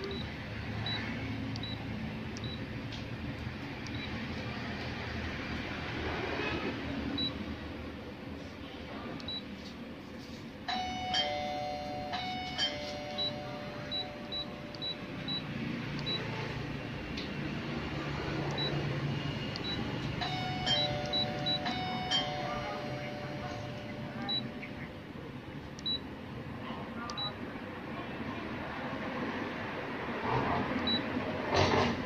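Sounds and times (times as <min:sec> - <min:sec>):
touchscreen beeps: 0:00.0 - 0:02.6, 0:10.7 - 0:16.4, 0:18.5 - 0:18.8, 0:19.6 - 0:25.0, 0:25.8 - 0:26.1, 0:27.1 - 0:27.4, 0:30.8 - 0:31.1
steady low hum: 0:07.1 - 0:27.9
two-tone electronic chime: 0:10.7 - 0:16.3, 0:19.6 - 0:24.9.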